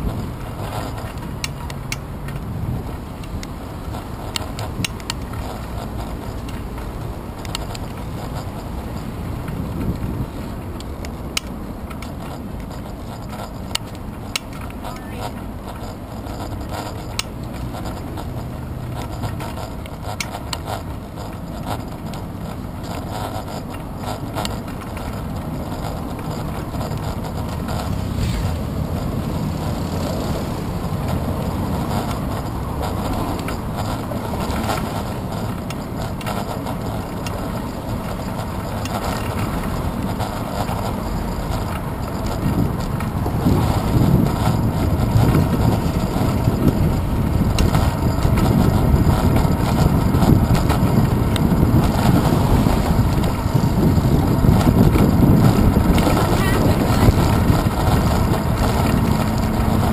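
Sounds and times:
low rumble of tyres on road: 0.0s - 59.9s
wind rushing over camera: 0.0s - 59.9s.

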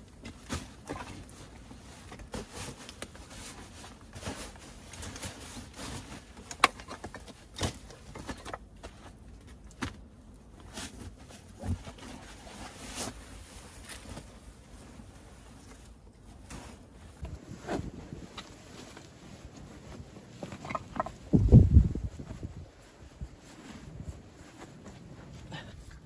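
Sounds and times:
nylon fabric rustling: 10.7s - 25.7s
shoes shifting on loose stones: 16.8s - 22.8s.

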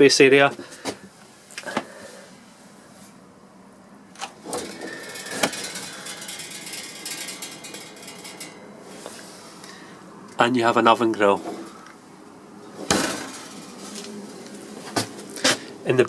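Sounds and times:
metal parts rattling: 4.2s - 10.7s, 11.3s - 11.9s, 12.6s - 15.5s.

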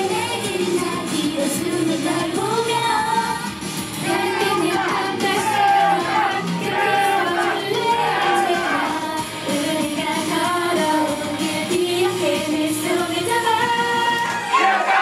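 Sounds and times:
pop song with woman singing: 0.0s - 15.0s.

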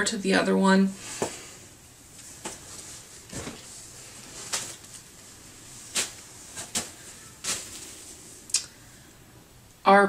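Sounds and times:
clothing rustling: 2.0s - 8.5s.

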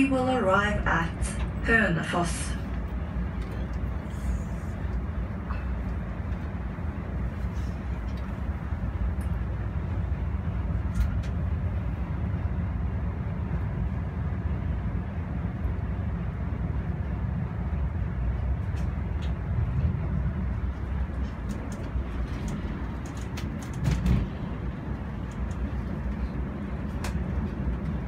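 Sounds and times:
train rumble inside carriage: 0.0s - 28.0s.

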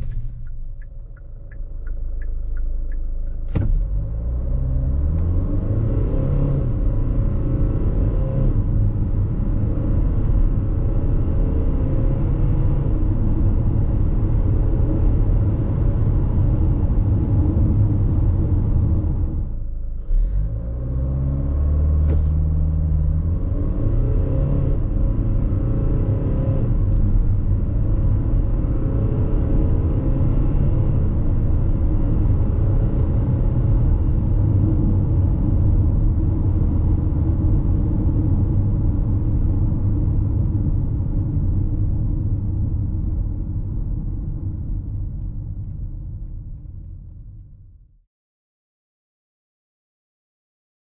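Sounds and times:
road noise: 0.0s - 44.5s
car engine accelerating: 0.0s - 45.8s.

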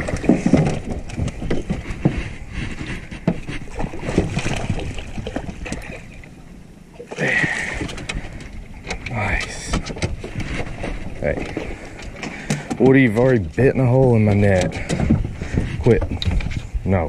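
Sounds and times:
knocks and clatter on boat: 0.0s - 6.4s, 7.2s - 17.0s
fish splashing at water surface: 3.7s - 6.1s.

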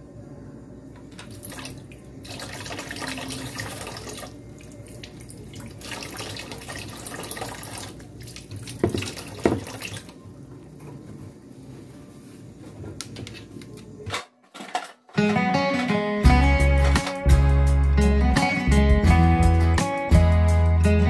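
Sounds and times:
water running from tap: 1.2s - 10.2s
plastic container knocking on counter: 8.8s - 9.7s.

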